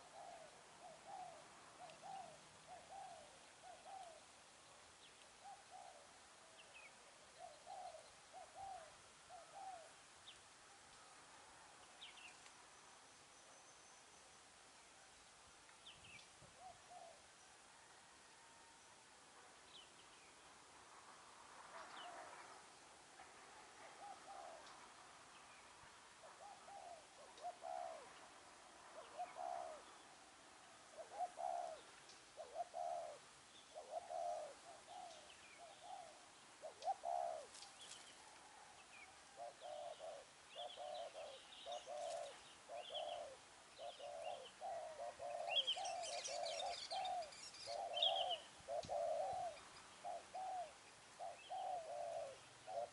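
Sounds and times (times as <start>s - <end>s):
doves cooing: 0.0s - 4.4s, 23.8s - 24.8s, 26.2s - 52.9s.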